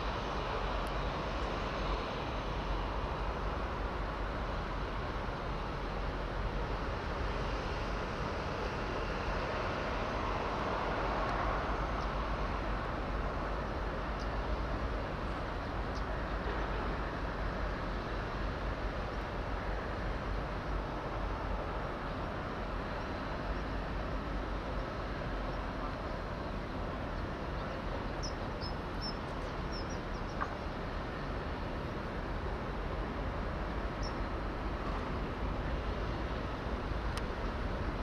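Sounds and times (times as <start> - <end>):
bird chirps: 28.2 - 30.4.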